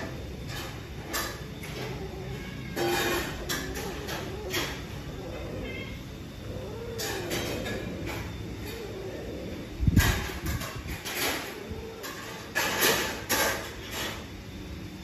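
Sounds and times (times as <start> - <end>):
faint low cat yowling: 1.7 - 9.7.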